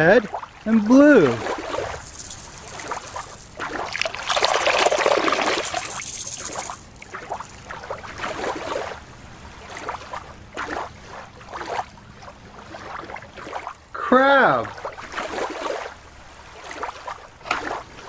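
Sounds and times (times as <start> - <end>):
rush of water: 0.0 - 9.0
water splashing at shoreline: 0.2 - 13.8, 14.6 - 18.0.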